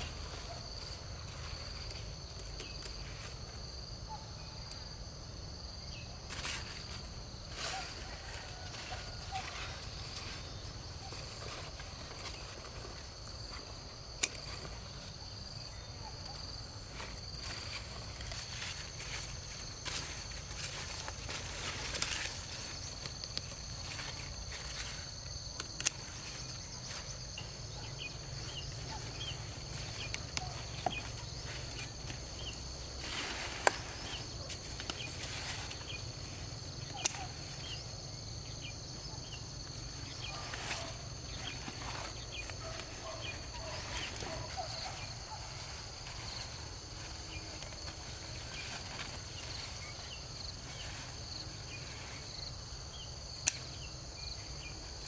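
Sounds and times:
footsteps in vegetation: 0:00.0 - 0:04.0, 0:06.2 - 0:55.0
insects droning: 0:00.0 - 0:55.0
sharp snaps and clicks: 0:25.6 - 0:26.1, 0:36.8 - 0:37.2, 0:53.4 - 0:53.7.

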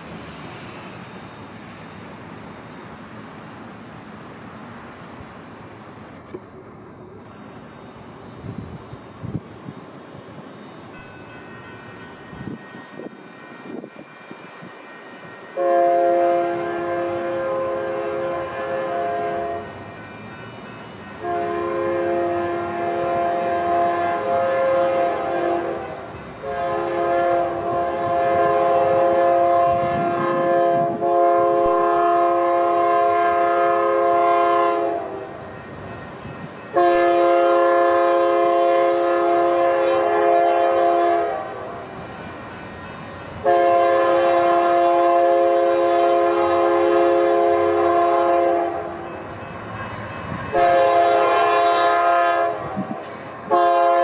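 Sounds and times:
train rumble: 0:00.0 - 0:54.0
locomotive air horn blasts: 0:15.6 - 0:19.8, 0:21.2 - 0:35.4, 0:36.7 - 0:41.9, 0:43.4 - 0:49.2, 0:49.8 - 0:54.0.

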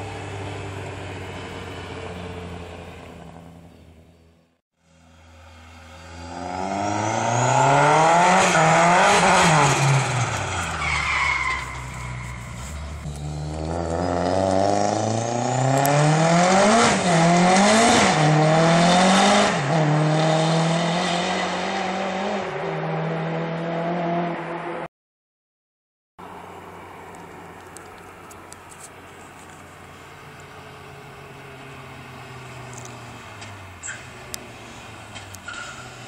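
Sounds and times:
rally car engine accelerating: 0:05.1 - 0:10.8, 0:12.7 - 0:24.9
brief high squeal: 0:35.4 - 0:36.0.

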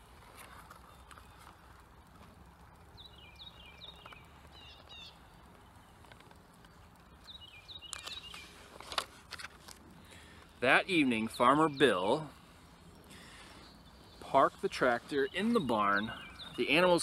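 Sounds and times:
small bird chirping: 0:02.9 - 0:08.7, 0:10.7 - 0:17.0
rustling of book pages: 0:07.8 - 0:10.5.

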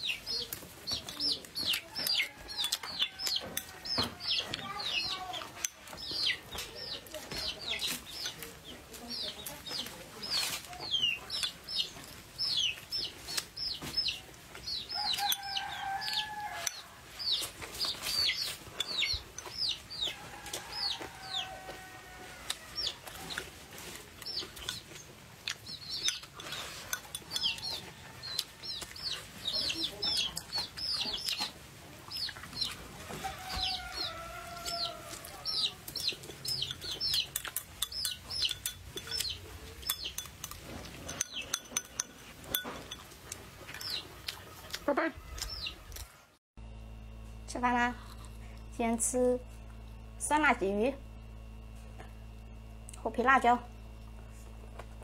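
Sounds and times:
chicks peeping: 0:00.0 - 0:40.3, 0:40.9 - 0:42.8, 0:43.4 - 0:46.3
chewing: 0:00.1 - 0:46.2, 0:48.0 - 0:48.7
chopsticks clicking on a bowl: 0:24.3 - 0:29.0, 0:34.6 - 0:44.8.

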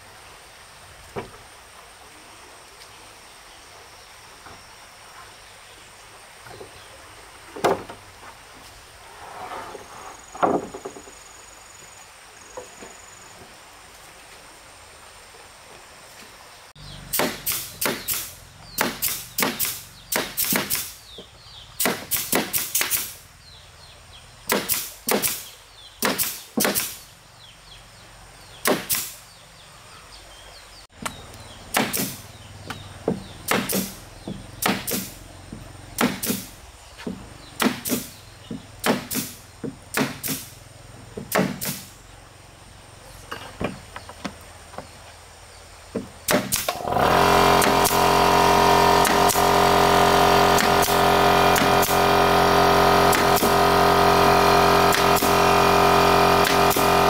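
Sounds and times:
sharp knock on wood: 0:17.2 - 0:18.2, 0:18.8 - 0:20.8, 0:31.8 - 0:36.4, 0:41.2 - 0:41.8.

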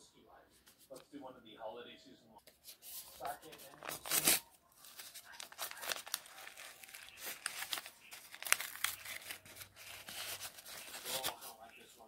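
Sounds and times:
tea packet crinkling: 0:03.1 - 0:11.8.

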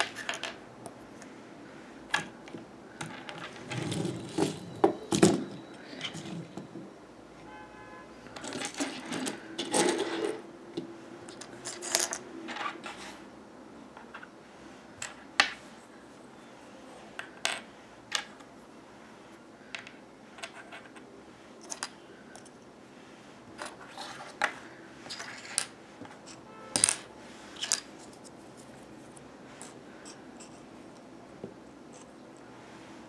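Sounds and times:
plastic toys clacking together: 0:08.4 - 0:10.4, 0:11.3 - 0:13.0.

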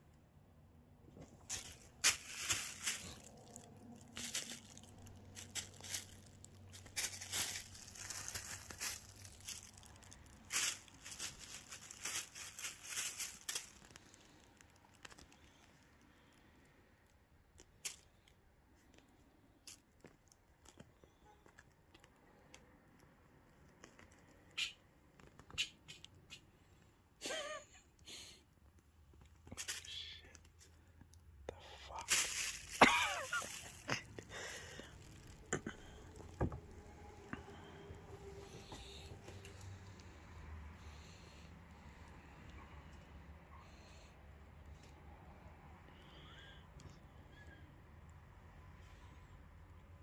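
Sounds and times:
plastic bag crinkling and rustling: 0:01.2 - 0:16.4, 0:31.9 - 0:40.0.

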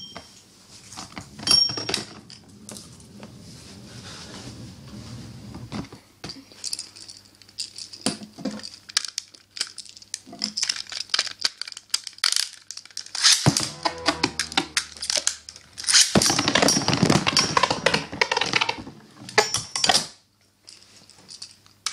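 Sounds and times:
plastic clicks and rattles: 0:06.6 - 0:13.3, 0:13.9 - 0:20.1
spinning tops whirring and grinding: 0:13.0 - 0:16.4
ripcord rasping burst: 0:13.1 - 0:16.2.

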